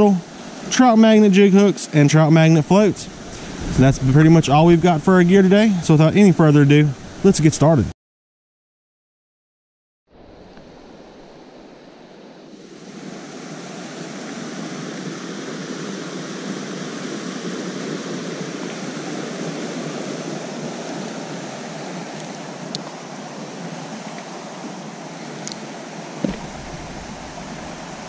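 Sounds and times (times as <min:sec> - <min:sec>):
creek running over rocks: 0:00.0 - 0:07.6, 0:18.2 - 0:28.0.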